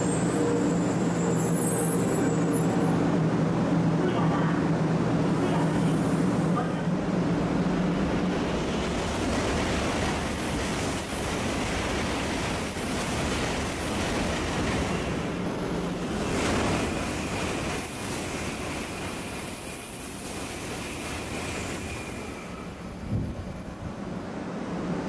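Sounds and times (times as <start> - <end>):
high-speed train passing: 0.0 - 25.0.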